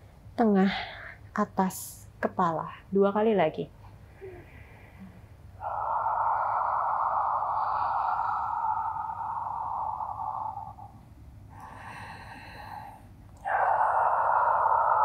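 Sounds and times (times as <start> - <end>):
woman breathing: 4.0 - 15.0.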